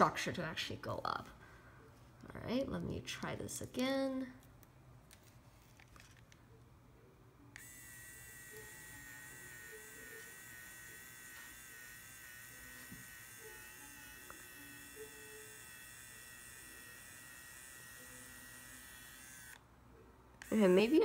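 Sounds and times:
pen motor high whine: 0:07.6 - 0:19.7, 0:20.4 - 0:21.0.

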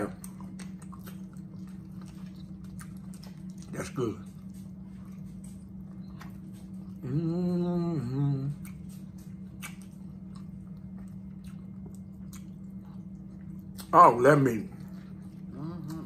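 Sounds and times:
chewing and mouth clicks: 0:00.0 - 0:16.0
low hum: 0:00.0 - 0:16.0
person humming mm-hmm: 0:07.0 - 0:08.7.

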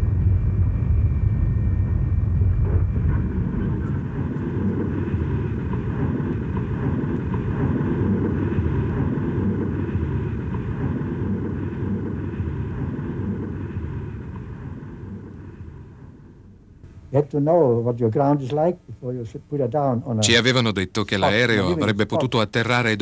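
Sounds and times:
aircraft engine rumble with whine: 0:00.0 - 0:16.6.

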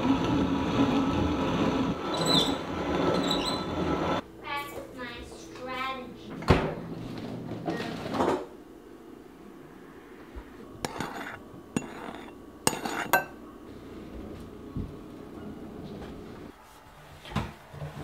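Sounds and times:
metal spoon clinking on cup: 0:10.9 - 0:13.4.

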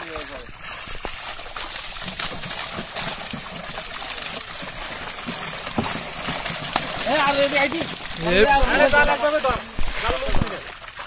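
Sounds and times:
fish splashing in a net: 0:00.0 - 0:11.0
water dripping: 0:00.0 - 0:11.0.

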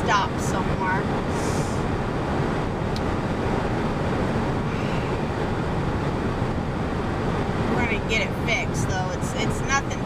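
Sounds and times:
road noise inside truck cab: 0:00.0 - 0:10.0.

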